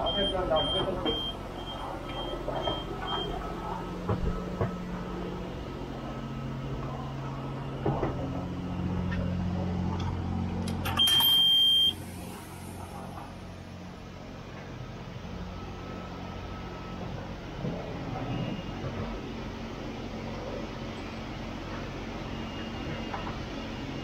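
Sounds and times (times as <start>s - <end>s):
long steady beep: 0.0s - 3.6s, 10.9s - 12.1s
low equipment hum: 0.0s - 24.0s
short high beeps: 11.0s - 12.0s.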